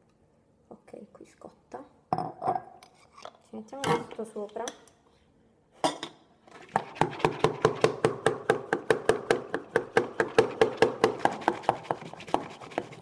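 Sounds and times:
milk frother plunger squelching: 0:09.7 - 0:13.0.

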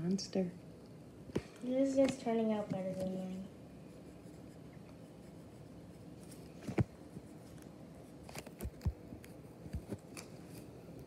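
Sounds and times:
pencil scratching on paper: 0:03.8 - 0:07.5.

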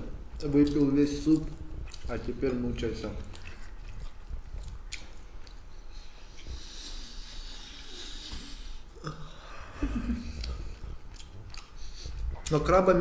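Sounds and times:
man sniffing through nose: 0:06.2 - 0:09.0.

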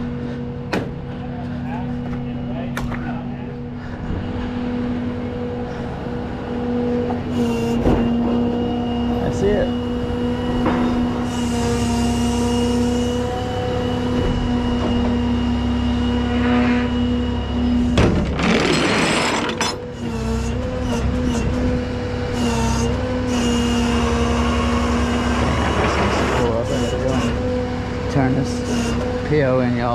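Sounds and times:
tow truck idling: 0:00.0 - 0:11.9.

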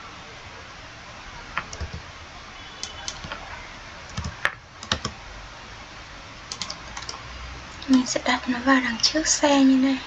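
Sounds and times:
keyboard key presses: 0:01.6 - 0:02.0, 0:02.8 - 0:03.5, 0:04.1 - 0:05.2, 0:06.5 - 0:07.2.

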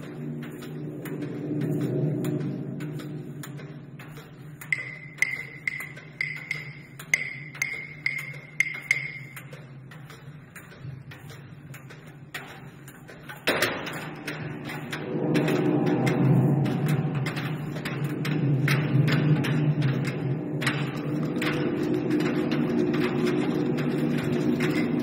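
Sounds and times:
low steady hum: 0:00.0 - 0:25.0
high ringing percussion pings: 0:04.7 - 0:09.4.

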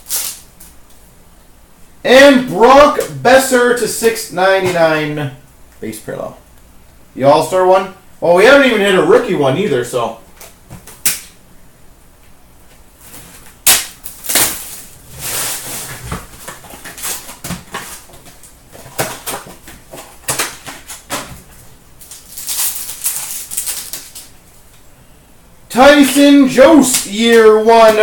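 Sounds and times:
sharp snap: 0:11.0 - 0:11.4, 0:13.6 - 0:14.5
cardboard and wrapper rustling: 0:13.0 - 0:24.3.

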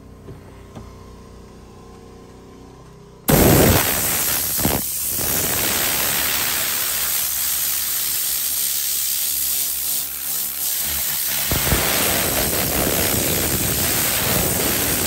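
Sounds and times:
compressed air hissing: 0:03.3 - 0:15.0.

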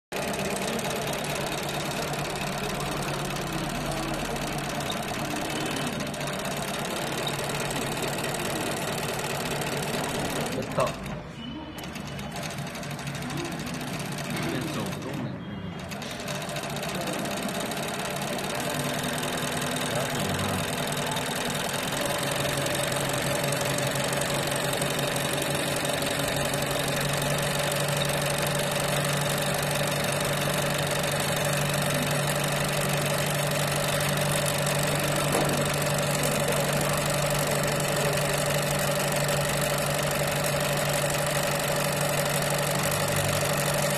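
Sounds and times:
sewing machine running: 0:00.1 - 0:43.9.

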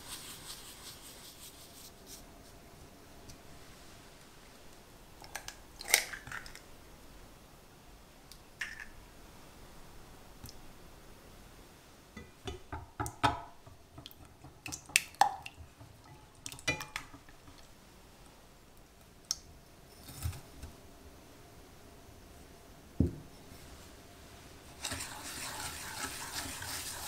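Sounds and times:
egg cracking: 0:05.2 - 0:06.6
whisk tapping a pot: 0:24.8 - 0:27.0.

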